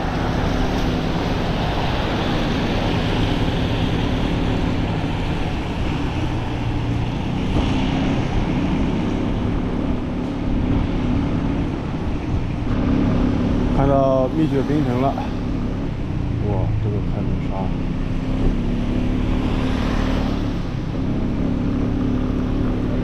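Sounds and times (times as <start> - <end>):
tyres hissing on wet road: 0.0 - 9.4, 12.9 - 15.8
wind buffeting microphone: 0.0 - 16.9.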